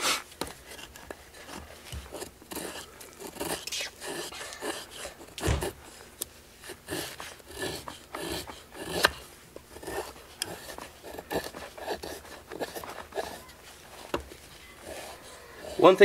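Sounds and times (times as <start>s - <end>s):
knife shaving wood: 0.0s - 16.0s
dull thump: 5.4s - 5.8s.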